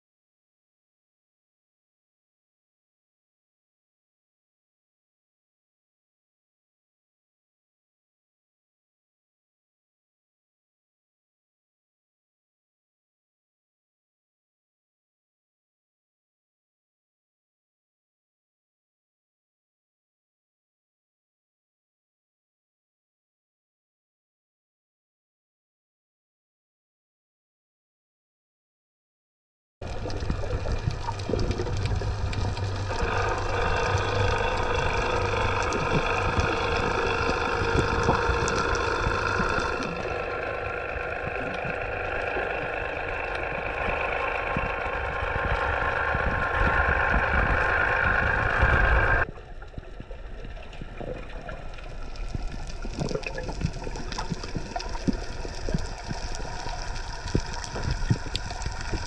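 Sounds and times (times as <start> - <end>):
clicks and crackles: 29.8 - 59.0
underwater boat engine drone: 29.8 - 59.0
underwater hiss: 31.1 - 40.1.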